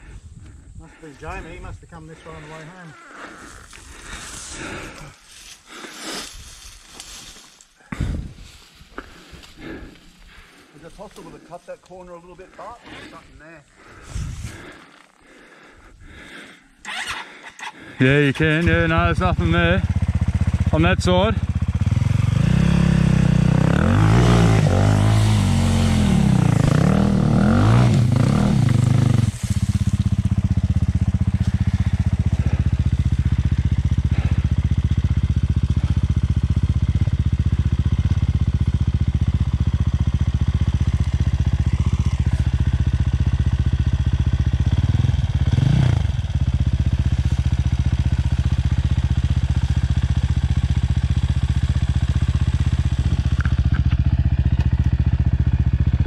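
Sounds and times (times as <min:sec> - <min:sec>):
dirt bike engine revving: 0:16.8 - 0:56.0.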